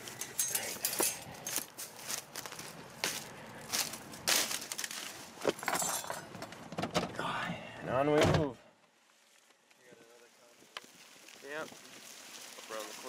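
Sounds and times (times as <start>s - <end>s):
footsteps through grass: 0.0s - 5.5s, 8.9s - 13.0s.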